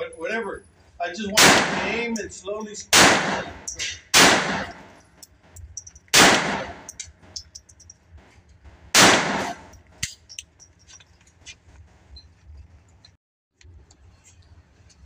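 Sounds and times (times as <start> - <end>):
pistol shots ringing indoors: 1.3 - 2.2, 2.9 - 5.0, 6.1 - 6.9, 9.0 - 9.7.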